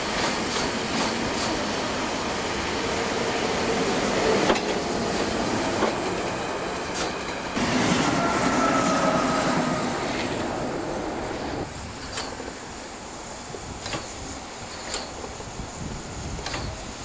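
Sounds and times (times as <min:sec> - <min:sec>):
locomotive steam hissing: 0:00.0 - 0:17.0
faint squealing tone: 0:07.8 - 0:11.6.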